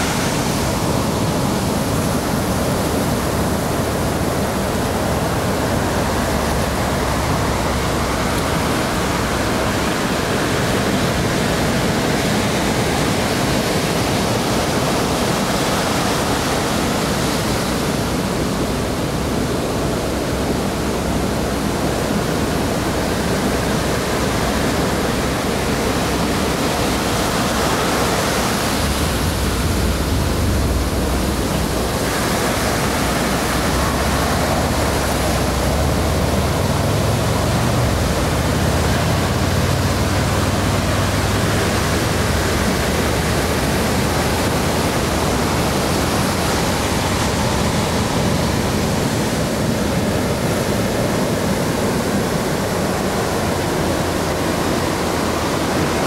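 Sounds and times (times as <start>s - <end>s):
ocean waves breaking on beach: 0.0s - 56.0s
low rumble: 28.9s - 32.0s.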